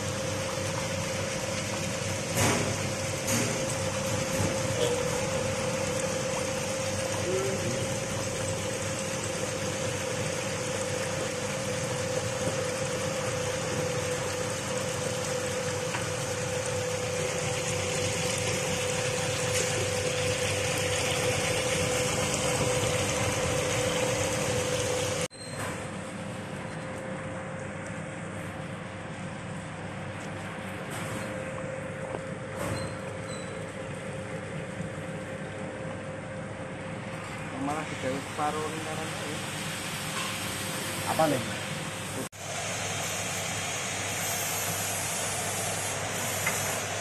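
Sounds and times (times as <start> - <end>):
water rushing and churning: 0.0 - 25.3.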